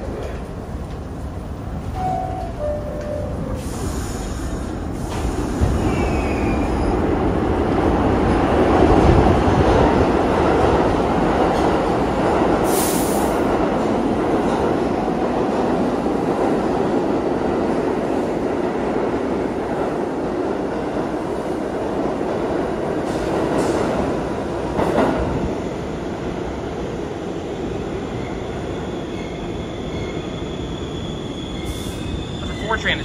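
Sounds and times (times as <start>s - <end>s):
subway train rumbling: 0.0s - 33.0s
sharp air hiss: 3.4s - 6.2s, 12.6s - 13.4s.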